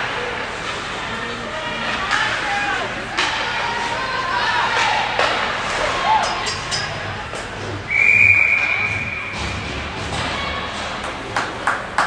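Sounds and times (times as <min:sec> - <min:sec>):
referee's whistle: 0:07.9 - 0:09.4.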